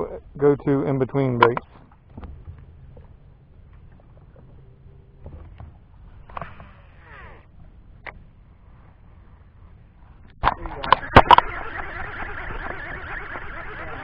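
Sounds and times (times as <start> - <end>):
low steady hum: 0.0 - 14.0
fishing reel whirring: 10.8 - 14.0.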